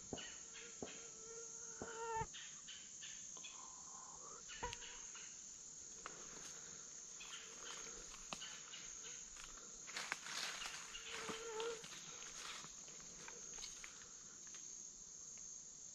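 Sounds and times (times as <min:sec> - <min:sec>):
high-pitched insect drone: 0:00.0 - 0:15.9.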